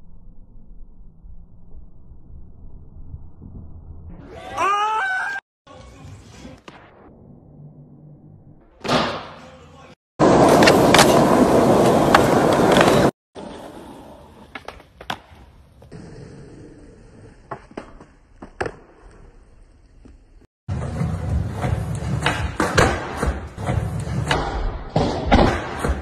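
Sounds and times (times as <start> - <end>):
skateboard hit: 8.8 - 9.4, 21.4 - 26.0
skateboard wheels rolling on pavement: 10.2 - 22.7.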